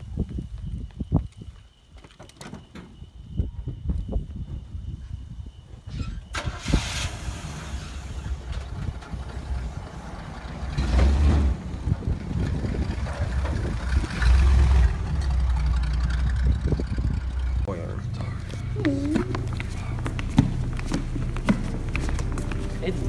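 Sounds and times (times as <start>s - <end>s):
truck engine starting and running: 5.9s - 23.0s
engine revving: 6.7s - 17.7s.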